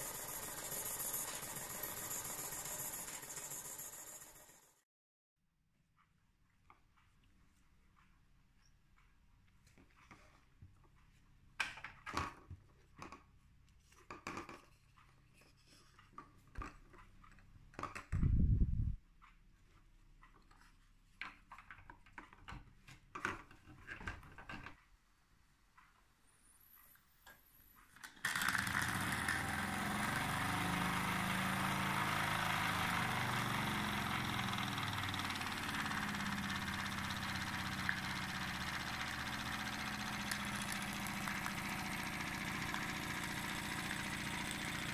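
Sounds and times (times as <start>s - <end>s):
model steam engine running: 0.0s - 4.8s, 28.2s - 44.9s.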